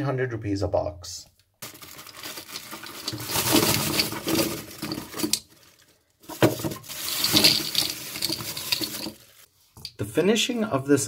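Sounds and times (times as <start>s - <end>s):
shotgun shells rattling onto a mat: 2.5s - 5.5s, 6.3s - 9.3s.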